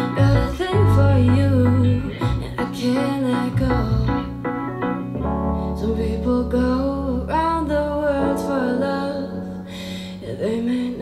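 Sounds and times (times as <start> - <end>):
song with singing guitar and bass: 0.0 - 11.0.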